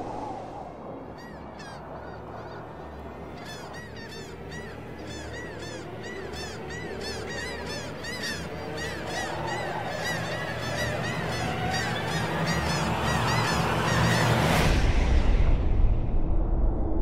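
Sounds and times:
geese honking: 0:01.2 - 0:14.5.

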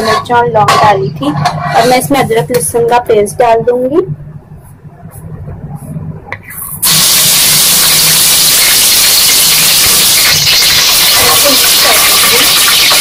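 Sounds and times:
loud sizzle of hot oil: 0:06.8 - 0:13.0.

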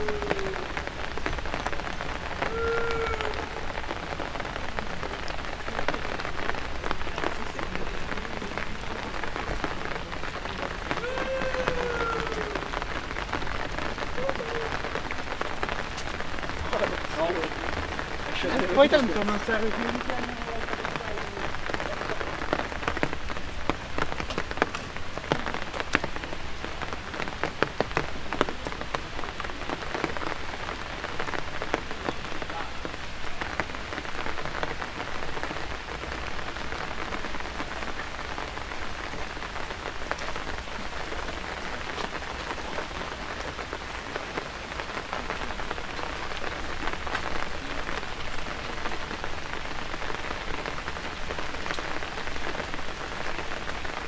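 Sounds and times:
rain on wet paving: 0:00.0 - 0:54.0.

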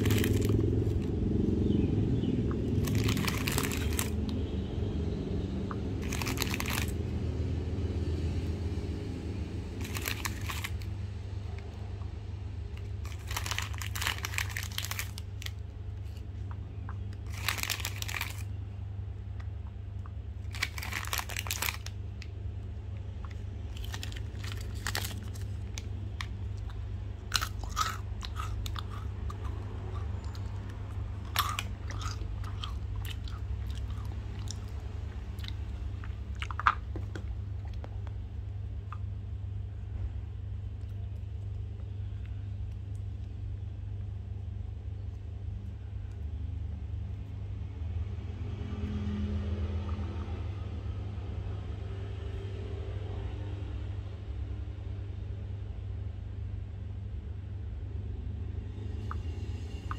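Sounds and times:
chocolate candy crunching: 0:00.0 - 0:01.5, 0:02.4 - 0:04.5, 0:05.6 - 0:07.3, 0:09.7 - 0:12.0, 0:12.6 - 0:18.7, 0:19.3 - 0:39.3
steady low hum: 0:00.0 - 0:59.9.

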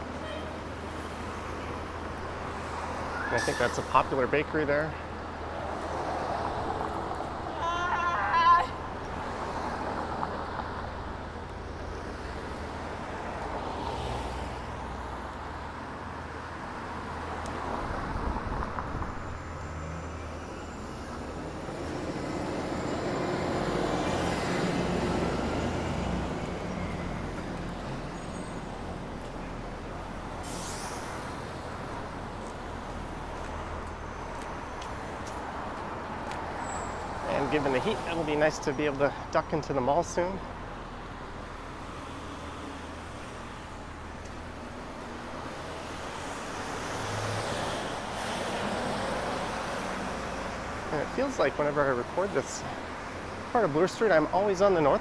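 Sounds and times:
passing cars rumbling: 0:00.0 - 0:55.0
brief sharp hiss: 0:30.4 - 0:31.3.

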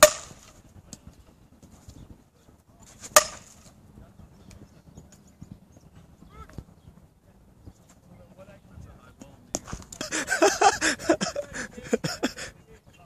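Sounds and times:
bat hitting ball with sharp crack: 0:00.0 - 0:00.6, 0:03.0 - 0:03.7.

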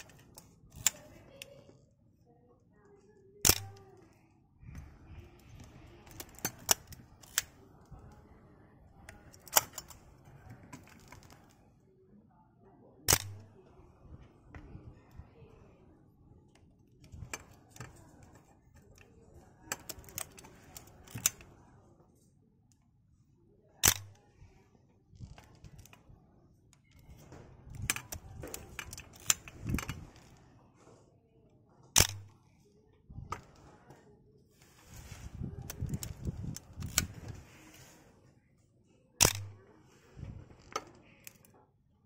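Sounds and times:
camera mechanical clicking and rattling: 0:00.0 - 0:01.6, 0:03.4 - 0:04.1, 0:04.7 - 0:08.2, 0:09.0 - 0:11.6, 0:13.1 - 0:13.5, 0:16.9 - 0:21.6, 0:23.8 - 0:24.2, 0:25.2 - 0:26.0, 0:26.8 - 0:30.4, 0:32.0 - 0:32.4, 0:34.9 - 0:37.6, 0:39.2 - 0:39.6.

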